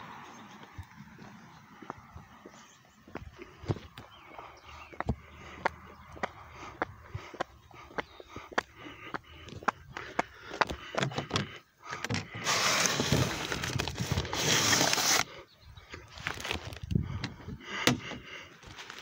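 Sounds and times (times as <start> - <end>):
envelopes rustling: 12.4 - 15.2.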